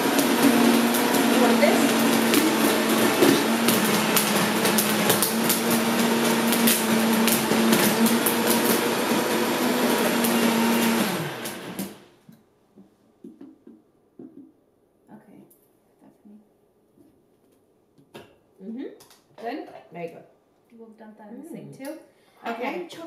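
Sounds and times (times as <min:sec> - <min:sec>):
blender motor running: 0:00.0 - 0:12.0.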